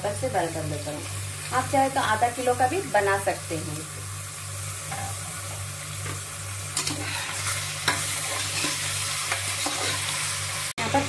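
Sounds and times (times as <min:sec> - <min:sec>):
meat sizzling in hot oil: 0:00.0 - 0:11.0
steel spoon scraping pot: 0:06.8 - 0:10.2.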